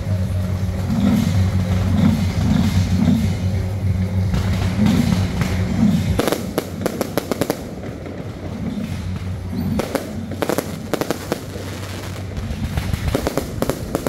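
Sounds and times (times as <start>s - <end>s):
fireworks crackling pops: 4.3s - 14.0s.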